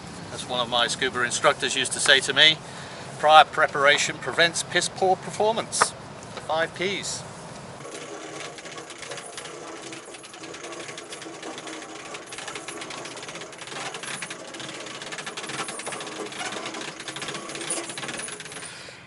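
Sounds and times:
winch ratchet clicking: 7.8 - 18.8.

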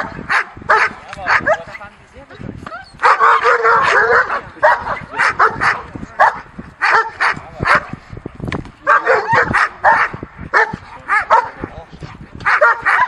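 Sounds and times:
dog barking: 0.0 - 1.7, 3.0 - 8.0, 8.8 - 11.6, 12.4 - 13.0.

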